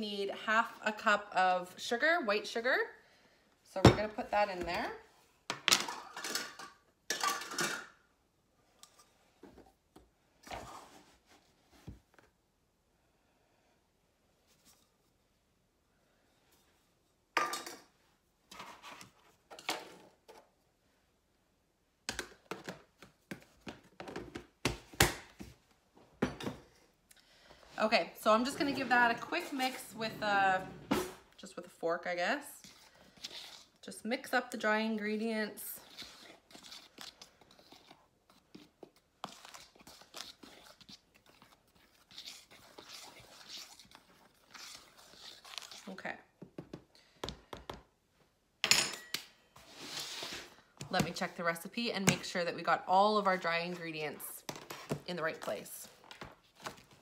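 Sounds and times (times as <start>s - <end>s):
fork scraping through flour: 32.6s - 33.8s, 35.8s - 46.0s
scrapes: 49.6s - 50.6s.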